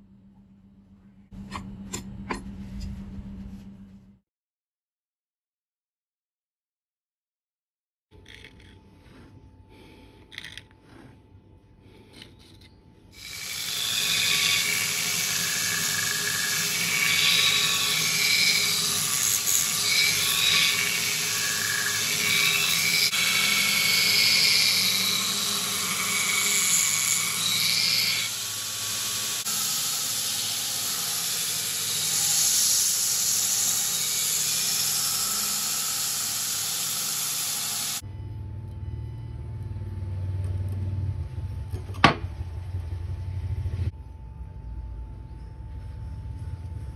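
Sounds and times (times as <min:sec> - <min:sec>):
belt grinder running: 0:13.2 - 0:38.0.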